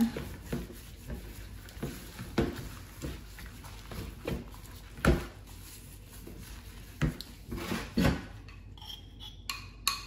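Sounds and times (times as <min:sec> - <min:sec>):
hands rubbing marinade into meat: 0:00.0 - 0:07.5.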